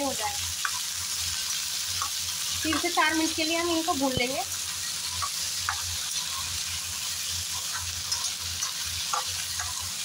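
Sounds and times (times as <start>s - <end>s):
potatoes sizzling in hot oil: 0.0s - 10.0s
spatula scraping a pan: 4.8s - 10.0s.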